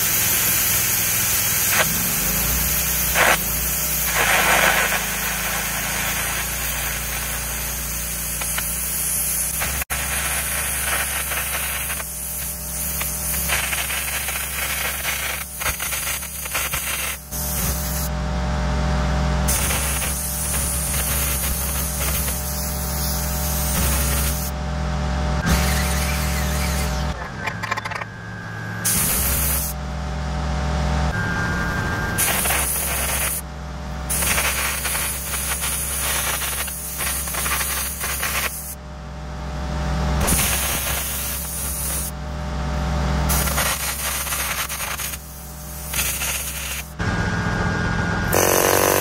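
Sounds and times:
arc gouging hissing crackle: 0:00.0 - 0:18.1, 0:19.5 - 0:24.5, 0:28.9 - 0:29.8, 0:32.2 - 0:38.8, 0:40.2 - 0:42.2, 0:43.3 - 0:47.0, 0:48.3 - 0:49.0
low engine hum: 0:17.2 - 0:49.0.

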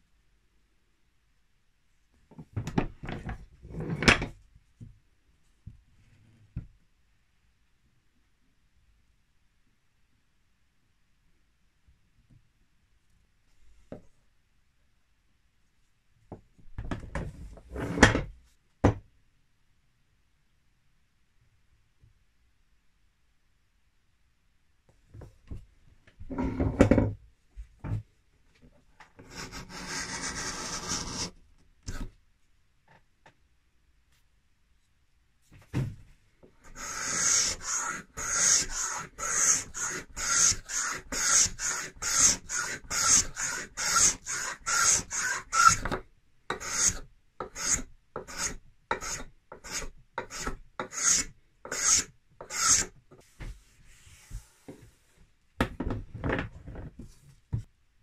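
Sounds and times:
scraper blade scraping wood: 0:29.3 - 0:31.3, 0:36.7 - 0:52.9.

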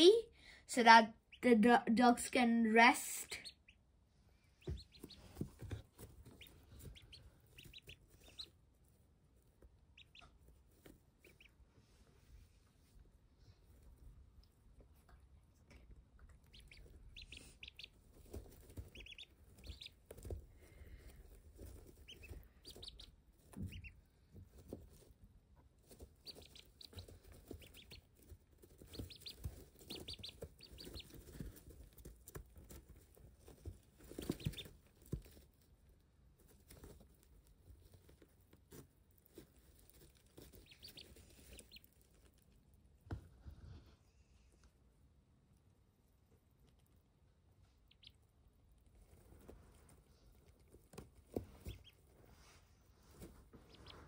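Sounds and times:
ducklings peeping: 0:03.0 - 0:11.7, 0:16.3 - 0:35.5, 0:36.6 - 0:42.4, 0:47.7 - 0:52.2, 0:53.5 - 0:54.0
rustling in wood shavings: 0:04.5 - 0:14.0, 0:16.5 - 0:42.6, 0:48.8 - 0:54.0.

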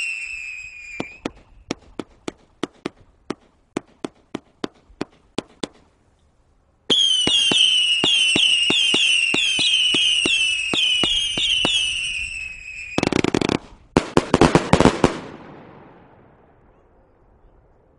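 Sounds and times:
firework whistling shots: 0:00.0 - 0:02.0, 0:06.9 - 0:15.4
firework crackling: 0:06.9 - 0:15.8.

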